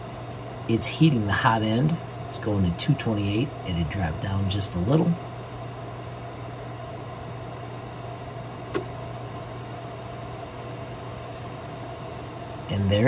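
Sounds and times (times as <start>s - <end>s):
printer fan hum: 0.0s - 13.0s.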